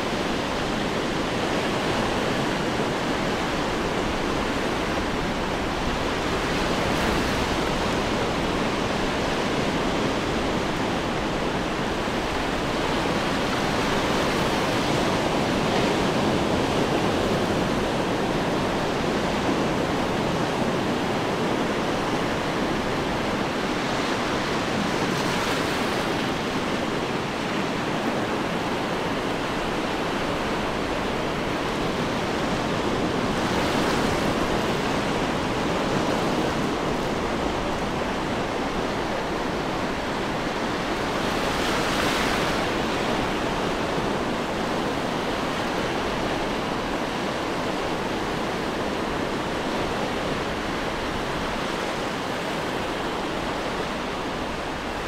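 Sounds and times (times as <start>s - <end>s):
ocean waves breaking: 0.0s - 55.0s.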